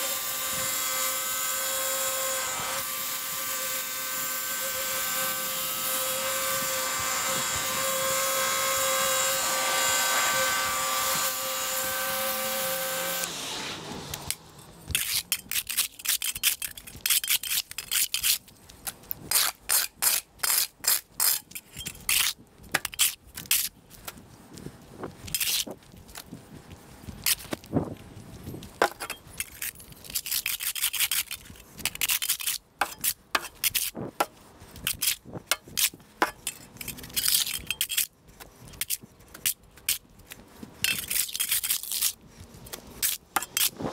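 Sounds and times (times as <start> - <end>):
sharp scrapes and rubbing clicks: 14.1 - 43.9.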